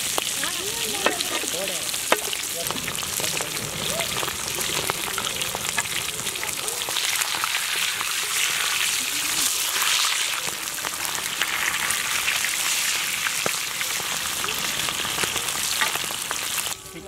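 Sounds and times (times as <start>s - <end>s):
fish deep-frying in oil: 0.0s - 17.0s.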